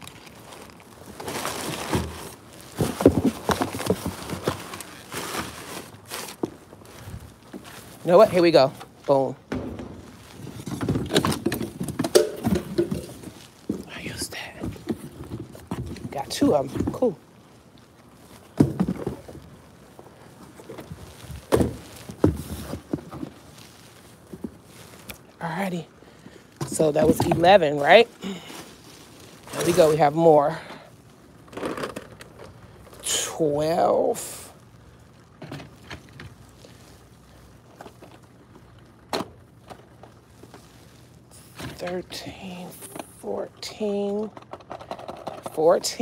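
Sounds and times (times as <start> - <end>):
packing paper rustling: 0.0 - 25.4, 26.0 - 30.2, 34.4 - 42.0
cardboard box knocks and scrapes: 1.7 - 4.8, 21.4 - 23.4.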